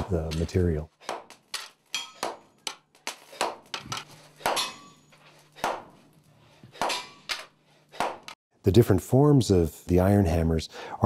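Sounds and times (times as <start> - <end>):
hammer striking hot iron on anvil: 1.1 - 5.9, 6.8 - 8.4.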